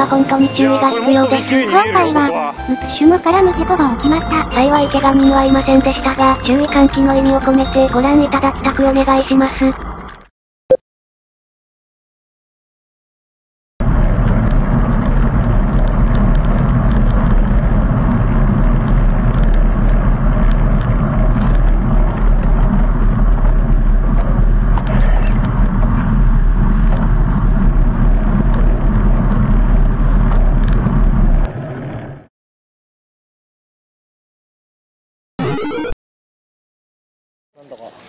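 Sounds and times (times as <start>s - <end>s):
wind and road noise rumble: 3.4s - 10.3s, 13.8s - 32.3s
traffic echoing in tunnel: 13.8s - 32.3s.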